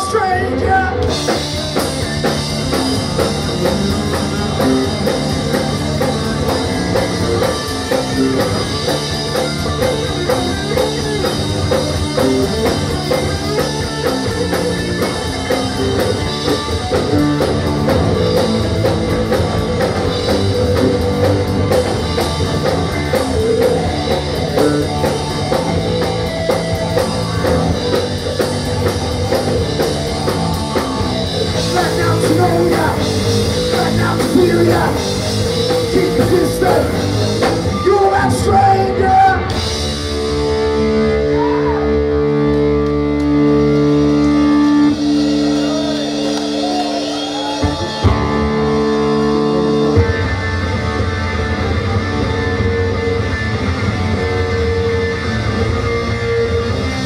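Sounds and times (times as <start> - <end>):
drum kit: 0.0 - 57.0
electric guitars: 0.0 - 57.0.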